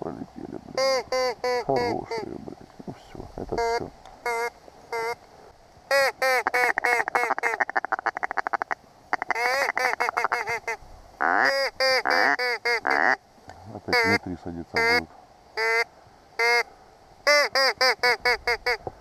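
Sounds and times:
duck call quacking: 0.8s - 2.3s, 3.6s - 5.2s, 5.9s - 13.2s, 13.9s - 14.2s, 14.8s - 15.0s, 15.6s - 18.8s.

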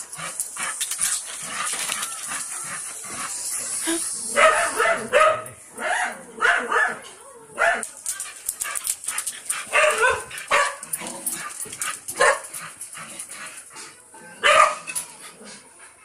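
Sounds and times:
dog barking: 4.4s - 7.0s, 7.6s - 7.8s, 9.7s - 10.8s, 12.2s - 12.4s, 14.4s - 14.8s.

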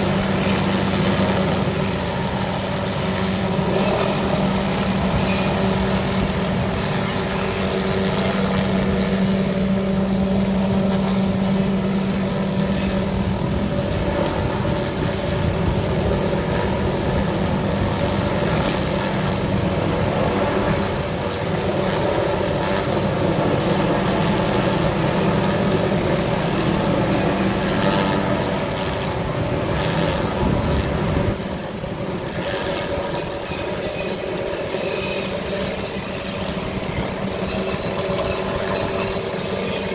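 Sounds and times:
helicopter rotor and engine drone: 0.0s - 39.9s.

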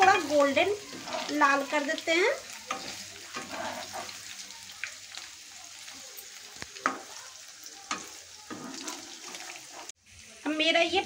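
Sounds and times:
cheese frying in oil sizzle: 0.0s - 11.0s
spatula tapping and scraping pan: 2.6s - 4.3s, 6.6s - 7.1s, 7.8s - 9.9s.

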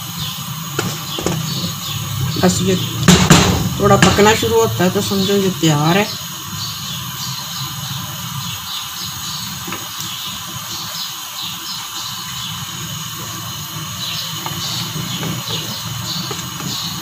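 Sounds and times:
steady hiss: 0.0s - 17.0s
curry simmering in a pot: 6.2s - 17.0s.

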